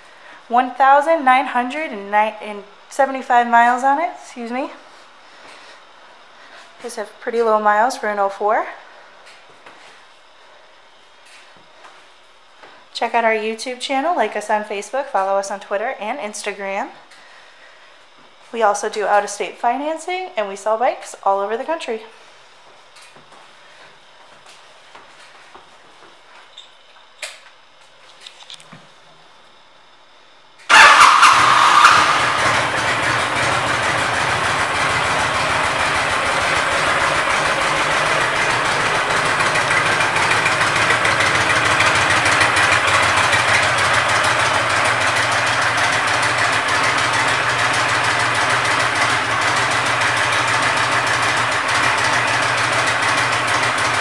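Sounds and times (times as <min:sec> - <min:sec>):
motorcycle engine starting and idling: 0:30.7 - 0:54.0.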